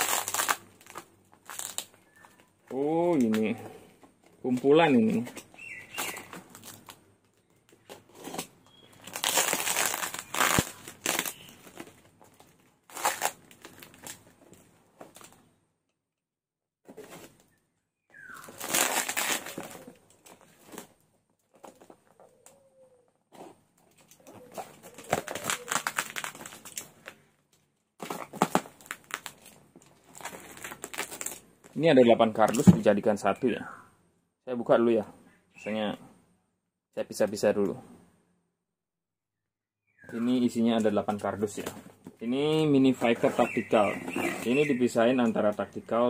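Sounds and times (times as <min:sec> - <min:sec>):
packing tape and cardboard tearing: 0:00.0 - 0:02.4, 0:05.0 - 0:07.0, 0:07.6 - 0:14.2, 0:18.4 - 0:21.0, 0:23.3 - 0:27.2, 0:28.0 - 0:31.4, 0:42.9 - 0:44.7
plastic wrapping crinkling: 0:00.0 - 0:03.5, 0:04.5 - 0:15.4, 0:18.3 - 0:22.3, 0:23.9 - 0:31.8.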